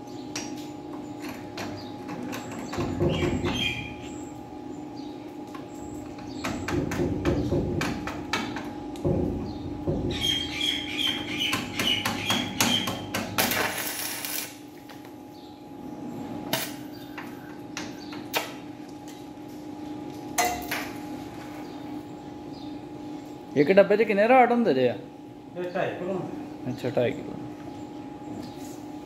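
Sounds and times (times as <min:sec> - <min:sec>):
steady low hum: 0:00.0 - 0:29.0
arc welding clicks and crackles: 0:12.8 - 0:15.2.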